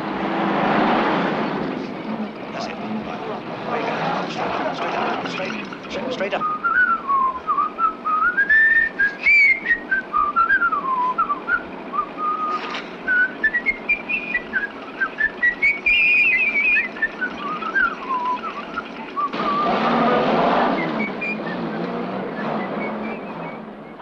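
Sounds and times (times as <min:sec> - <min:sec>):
person whistling a tune: 0:06.4 - 0:19.8, 0:20.7 - 0:24.0.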